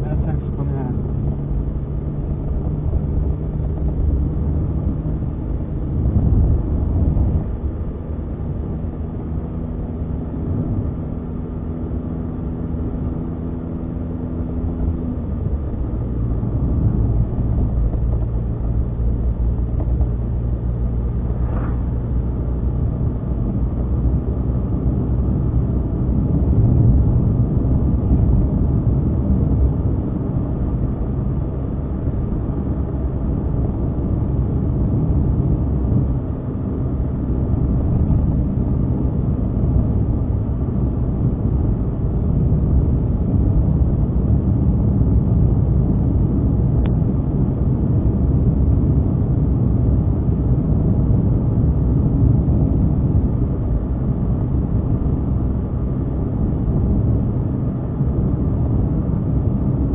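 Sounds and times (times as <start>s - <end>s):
car engine: 0.0s - 59.9s.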